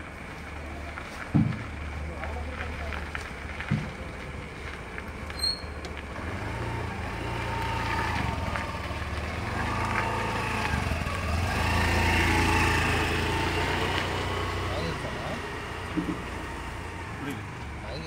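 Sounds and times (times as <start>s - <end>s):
motorcycle engine approaching: 5.4s - 18.0s.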